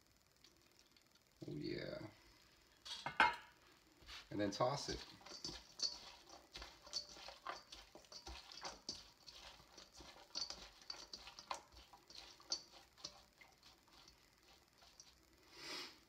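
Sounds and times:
salad tossed in metal bowl: 4.1 - 15.3.

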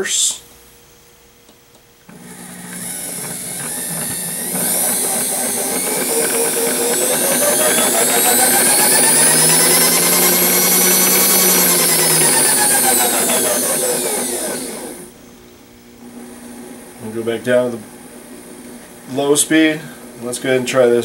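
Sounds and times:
power feed motor whine: 2.1 - 15.4.

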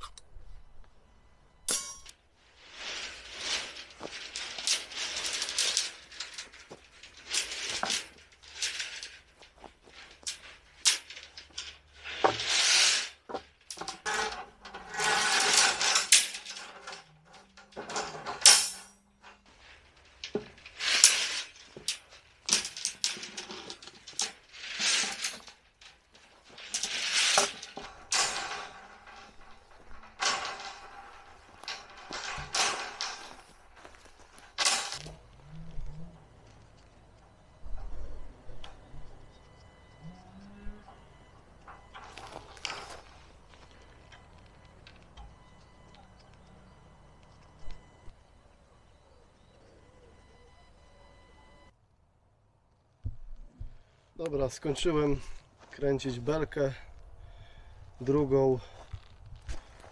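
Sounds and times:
wire scraping and clinking on steel: 1.2 - 51.7, 54.2 - 59.9.

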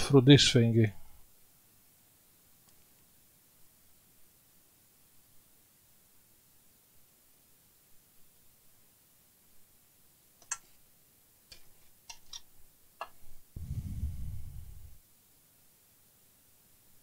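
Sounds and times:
small parts clicking on bench: 10.4 - 10.7, 11.5 - 13.2
low rumble: 13.6 - 15.0.

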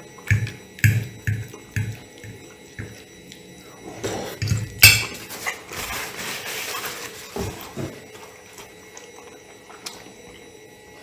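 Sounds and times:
chewing pasta: 0.0 - 11.0
paper napkin rustling: 5.2 - 8.3.

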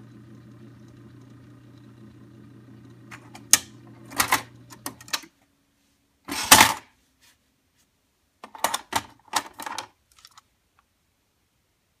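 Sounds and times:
cassette changer mechanical clatter: 2.9 - 5.3
plastic cassette clacks: 8.4 - 10.5.

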